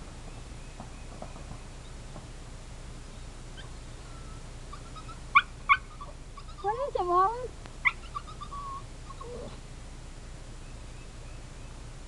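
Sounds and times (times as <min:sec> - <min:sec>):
faint bird chirps: 0:03.1 - 0:06.7, 0:10.5 - 0:11.9.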